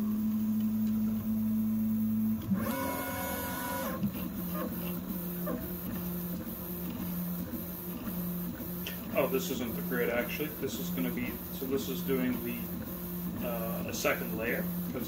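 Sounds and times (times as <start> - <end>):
printer stepper motors whining: 0.0 - 15.0.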